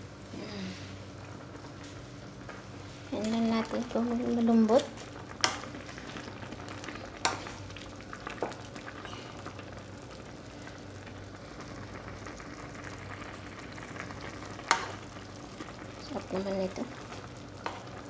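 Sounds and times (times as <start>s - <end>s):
soup bubbling: 1.1s - 18.0s.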